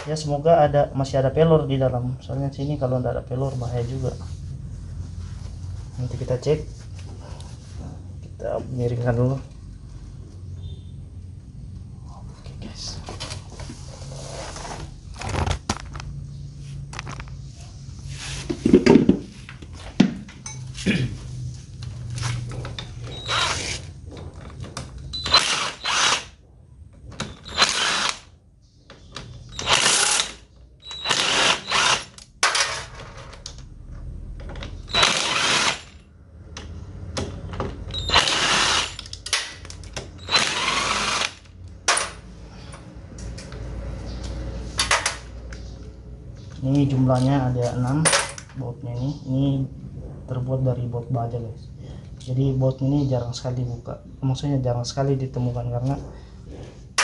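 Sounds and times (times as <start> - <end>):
power driver whirring: 23.1 - 23.8, 25.1 - 26.3, 27.3 - 28.3, 29.5 - 32.3, 34.9 - 36.0, 37.9 - 39.1, 40.2 - 41.5.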